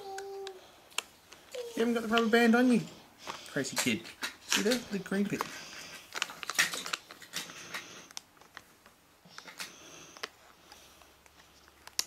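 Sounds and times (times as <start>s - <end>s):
plastic toy clicks and scrapes: 3.6s - 5.5s, 6.1s - 8.1s.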